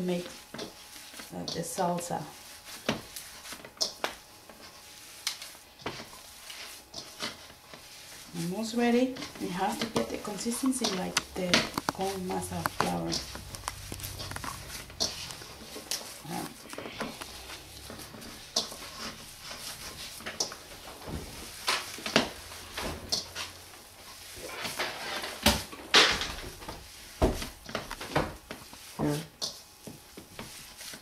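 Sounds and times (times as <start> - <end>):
wet squishes of kneading: 0.2 - 25.8.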